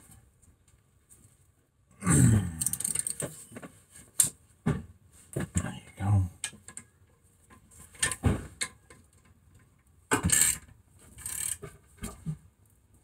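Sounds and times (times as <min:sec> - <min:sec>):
ratchet wrench clicking: 0:02.6 - 0:03.2, 0:11.2 - 0:11.6.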